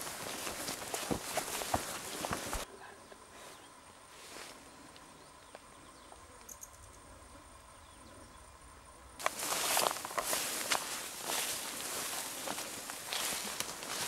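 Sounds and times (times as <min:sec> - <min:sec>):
footsteps through dry grass: 0:00.0 - 0:02.7, 0:09.2 - 0:14.0.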